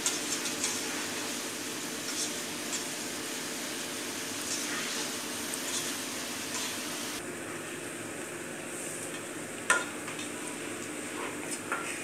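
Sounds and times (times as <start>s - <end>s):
pasta sizzling in a pot: 0.0s - 7.2s.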